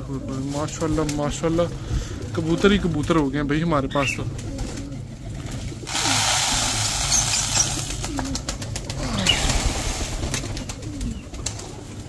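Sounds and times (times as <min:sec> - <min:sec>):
pigeons cooing: 0:00.0 - 0:12.0
pigeon wings flapping: 0:04.2 - 0:12.0.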